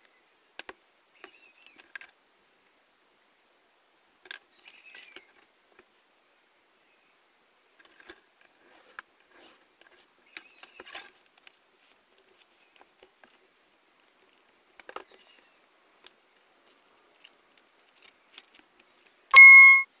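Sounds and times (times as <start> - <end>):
short beep: 19.4 - 19.9.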